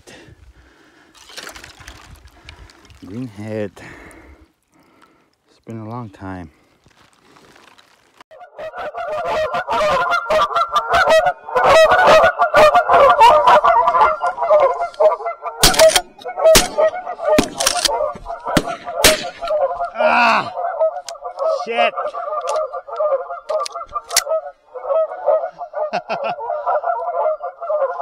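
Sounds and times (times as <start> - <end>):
geese honking: 8.3 - 28.0.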